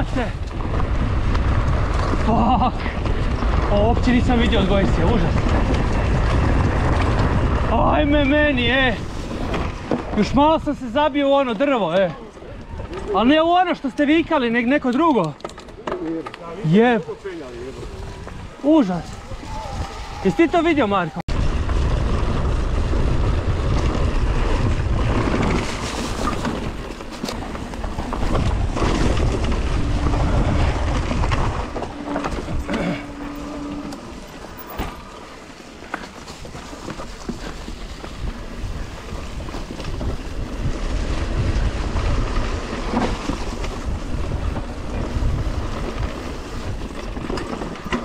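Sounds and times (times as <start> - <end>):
wind buffeting microphone: 0.0 - 11.4, 12.2 - 48.0
bike tyres rolling on dirt: 0.0 - 48.0
bike knocks and rattles: 0.4 - 10.6, 21.4 - 48.0.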